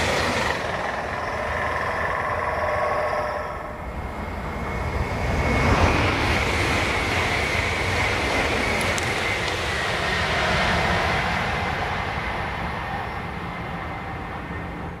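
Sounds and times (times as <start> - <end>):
high whine: 0.0 - 7.9
train passing at speed: 0.0 - 15.0.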